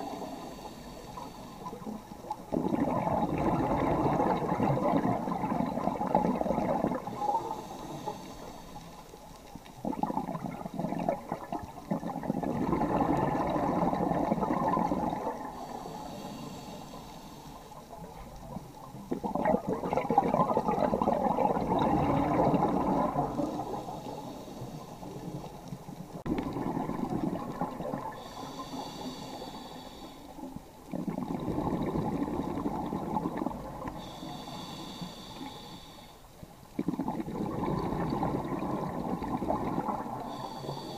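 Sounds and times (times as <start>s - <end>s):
diver breathing through regulator: 0.0s - 2.1s, 6.6s - 9.3s, 15.4s - 18.0s, 22.5s - 25.7s, 28.0s - 30.6s, 33.8s - 36.4s, 39.7s - 40.9s
exhaust bubbles rushing: 19.2s - 23.4s, 26.3s - 28.2s.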